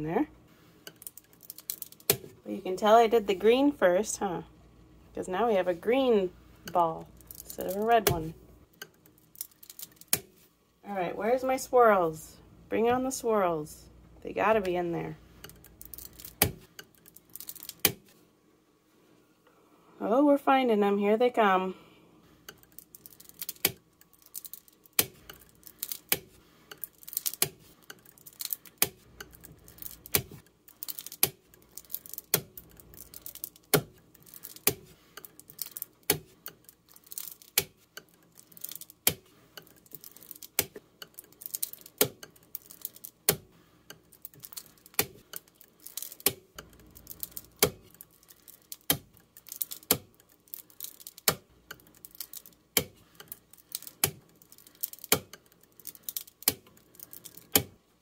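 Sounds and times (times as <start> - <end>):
wire clicking on plastic base: 22.4 - 57.8.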